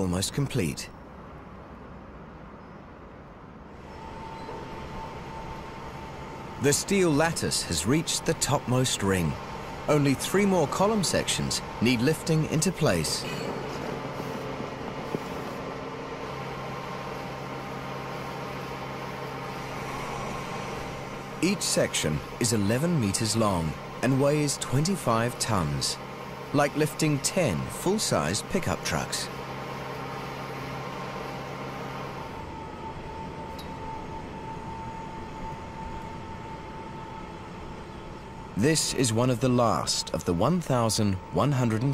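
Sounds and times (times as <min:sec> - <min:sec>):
construction machinery engine hum: 0:00.0 - 0:41.9
high steady whine: 0:03.2 - 0:41.9.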